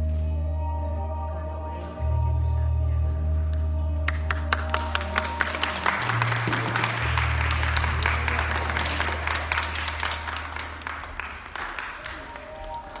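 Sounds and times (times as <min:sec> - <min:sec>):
low music notes: 0:00.0 - 0:13.0
audience clapping: 0:04.0 - 0:13.0.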